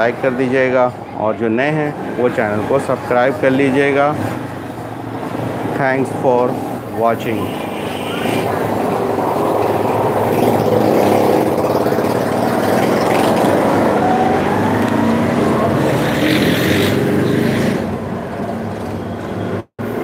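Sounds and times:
loud mechanical drone: 6.8 - 17.1.

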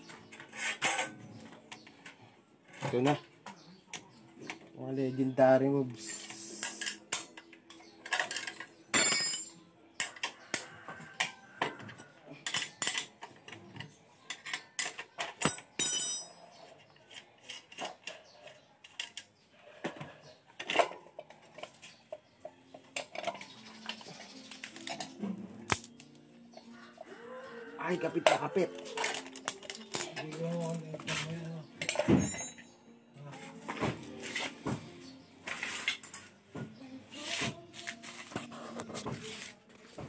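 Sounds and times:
metal parts and tools clinking: 0.0 - 4.6, 5.9 - 26.7, 28.0 - 34.6, 35.5 - 36.4.

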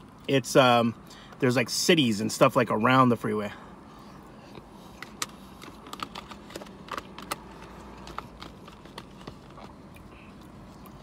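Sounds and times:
plastic container clicking and crackling: 5.0 - 9.9.

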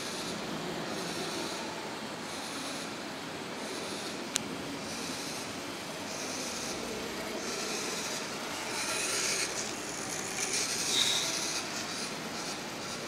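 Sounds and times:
hand rubbing robot: 6.1 - 13.0
toy robot motors whirring: 6.1 - 13.0.

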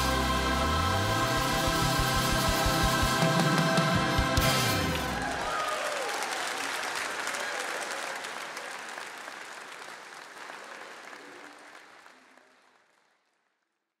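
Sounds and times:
congregation applauding: 1.4 - 13.8.

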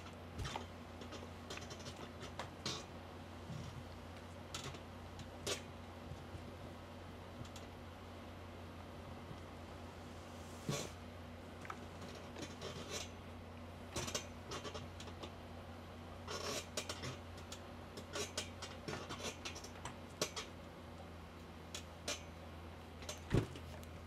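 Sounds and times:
small clicks and knocks: 0.0 - 2.9
steady low hum: 0.0 - 24.0
iron sliding over fabric: 9.9 - 11.0.

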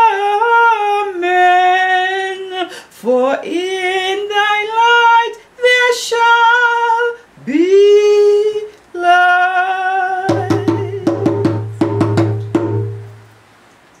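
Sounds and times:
woman singing long notes: 0.0 - 11.8
sharp percussive knocks: 10.3 - 13.2.

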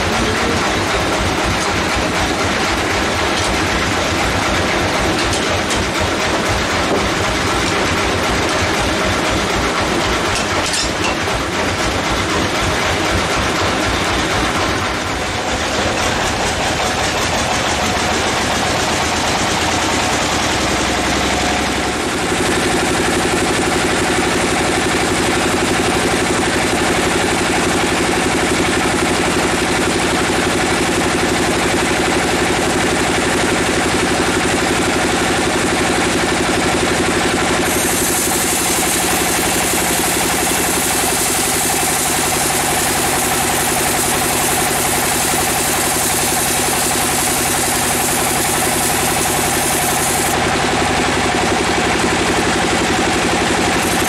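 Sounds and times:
bandsaw mill machinery running: 0.0 - 54.0
band saw whine: 36.7 - 54.0.

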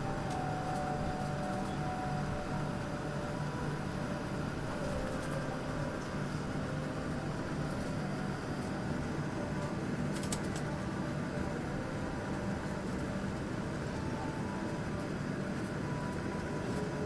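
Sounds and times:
jet engines idling: 0.0 - 17.0.

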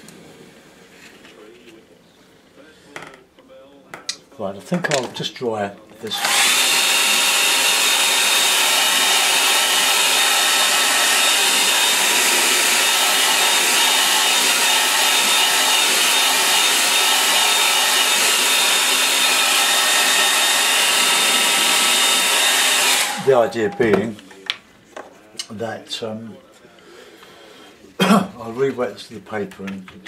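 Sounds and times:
hair dryer blowing: 6.1 - 24.0.

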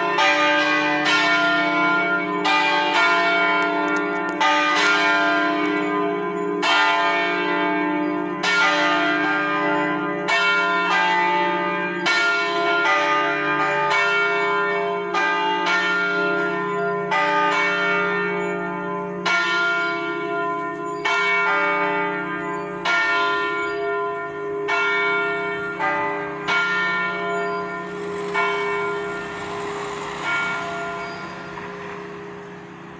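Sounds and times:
church bells ringing: 0.0 - 32.9
bell hum: 26.2 - 32.9.

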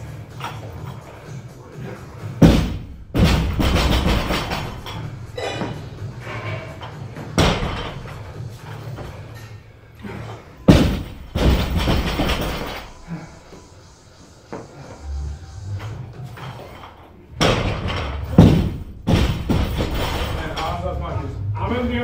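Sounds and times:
barbell slamming onto platform: 7.4 - 8.1.

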